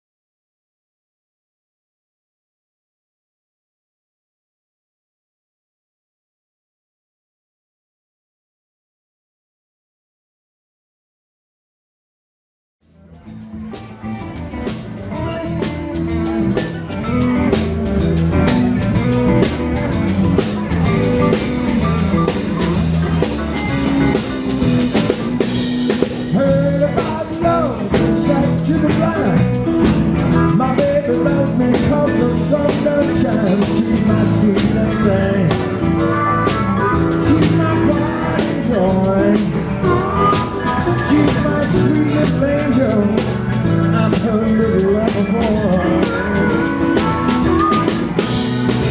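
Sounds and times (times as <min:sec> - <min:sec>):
electric bass: 0:12.8 - 0:48.9
drum kit: 0:12.9 - 0:48.9
keyboards: 0:12.9 - 0:48.9
electric guitar: 0:13.0 - 0:48.9
man singing: 0:20.4 - 0:48.9.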